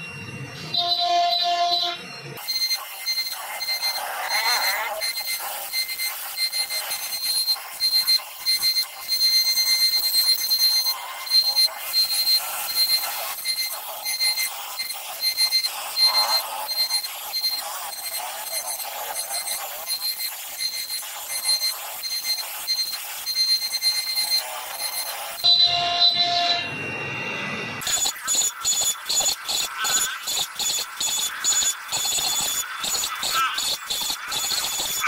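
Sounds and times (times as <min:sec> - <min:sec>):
cnc router spindle whine: 0:00.0 - 0:35.0
cutting hiss: 0:02.4 - 0:25.4.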